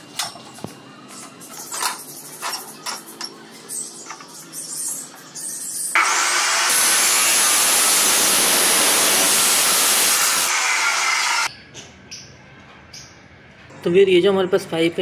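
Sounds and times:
chop saw grinding steel: 0:06.0 - 0:11.5.

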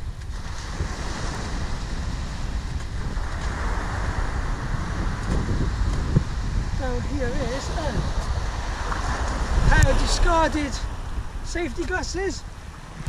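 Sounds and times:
wind buffeting microphone: 0:00.0 - 0:13.0
waves breaking on pebbles: 0:00.1 - 0:12.0.

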